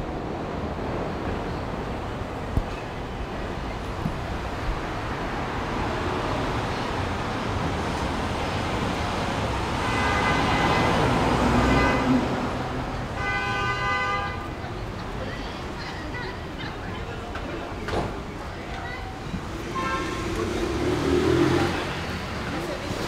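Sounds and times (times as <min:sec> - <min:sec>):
busy street traffic: 0:00.0 - 0:23.0
vehicle horn: 0:09.8 - 0:12.5, 0:13.1 - 0:14.5, 0:19.6 - 0:20.7.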